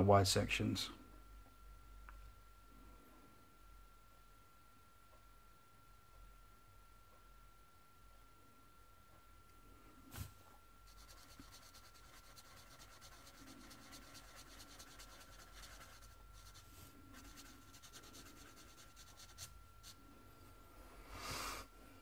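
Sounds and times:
marker scratching on paper: 10.9s - 20.0s.

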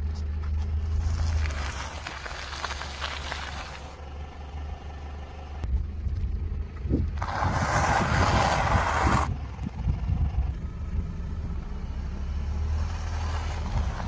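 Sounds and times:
car tyre crushing objects: 0.0s - 5.5s, 7.0s - 9.8s, 12.8s - 14.0s
car rumble: 0.0s - 14.0s
plastic packet crushed by tyre: 0.8s - 4.0s.

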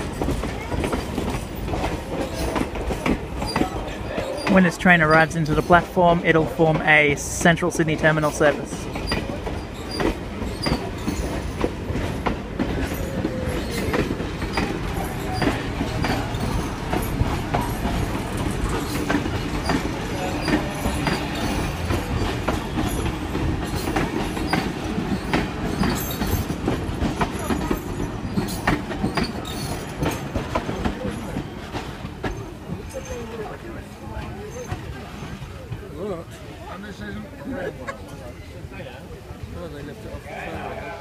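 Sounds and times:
train wheel squeal: 0.0s - 5.8s, 8.9s - 35.4s
train wheels clicking over rail joints: 0.0s - 36.0s
low train rumble: 0.0s - 41.0s.

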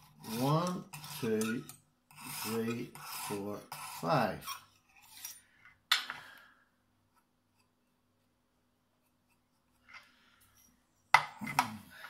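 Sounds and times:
hone rasping along knife edge: 0.0s - 5.4s.

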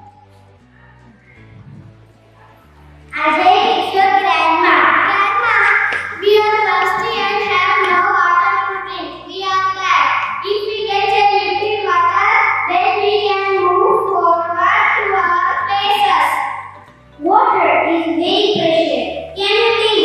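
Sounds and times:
children singing together: 3.2s - 16.4s.

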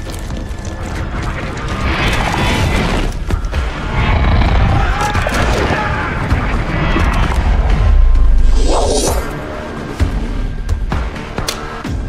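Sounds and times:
deep rumble: 0.0s - 9.6s
dramatic orchestral score: 0.0s - 12.0s.

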